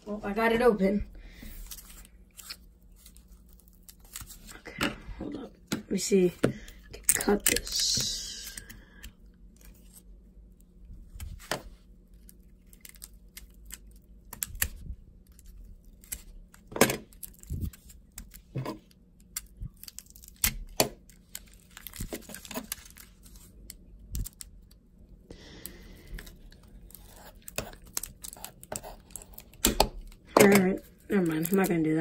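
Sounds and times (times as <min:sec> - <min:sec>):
cardboard and tape crinkling: 0:01.4 - 0:05.3, 0:11.1 - 0:24.8, 0:25.5 - 0:32.0.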